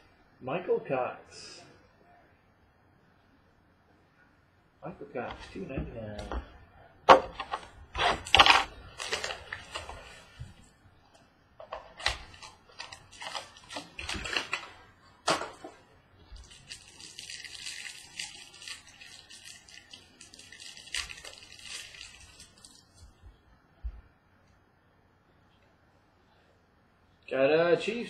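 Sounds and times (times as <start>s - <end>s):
cards rustling and clicking: 7.2s - 10.5s, 11.6s - 15.8s.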